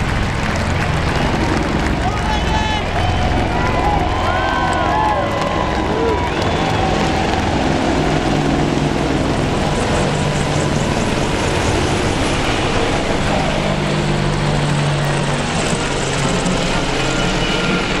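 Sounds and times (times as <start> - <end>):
helicopters flying overhead: 0.0 - 18.0.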